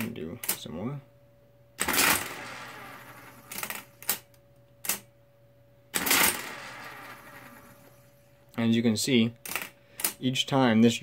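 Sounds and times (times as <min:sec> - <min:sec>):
mechanical calculator whirring: 0:01.8 - 0:04.2, 0:06.0 - 0:08.1.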